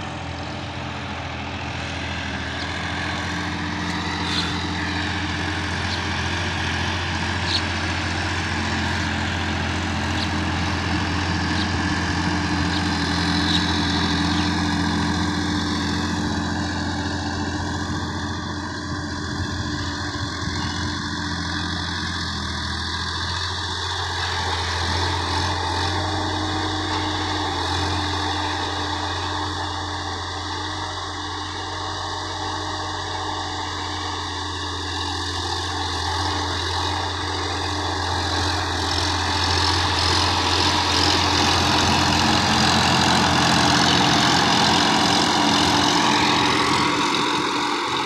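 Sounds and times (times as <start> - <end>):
tractor diesel engine under load: 0.0 - 48.0.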